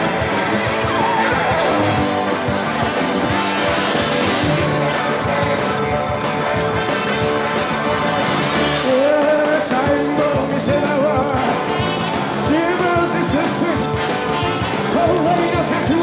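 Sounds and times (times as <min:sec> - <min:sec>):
live rock band playing: 0:00.0 - 0:16.0
person singing: 0:08.8 - 0:14.1, 0:14.8 - 0:16.0.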